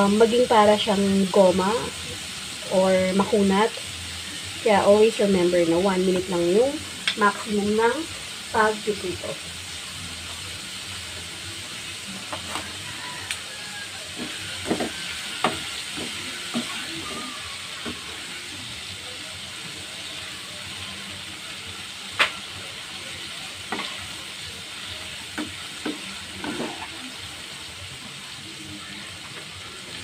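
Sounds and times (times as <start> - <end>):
oil sizzling: 0.0 - 30.0.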